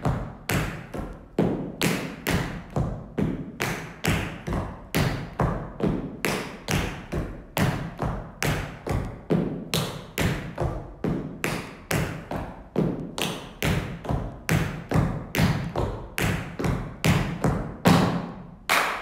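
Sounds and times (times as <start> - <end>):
tap shoes striking hard floor: 0.0 - 18.4.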